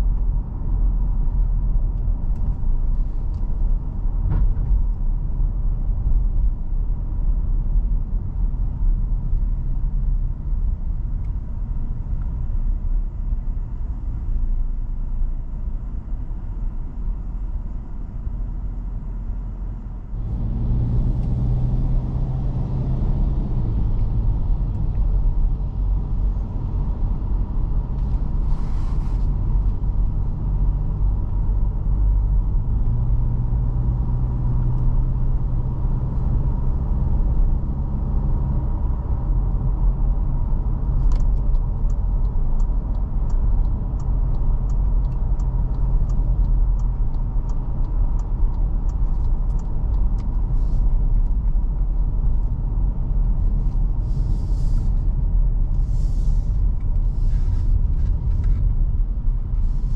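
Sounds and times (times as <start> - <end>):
car engine and road noise: 0.0 - 59.9
light regular ticking: 41.1 - 50.6.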